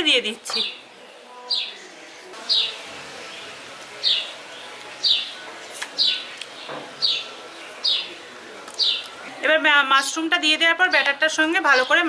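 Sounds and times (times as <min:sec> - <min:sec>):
bird chirping: 0:01.4 - 0:05.4, 0:06.0 - 0:08.2, 0:08.8 - 0:09.1.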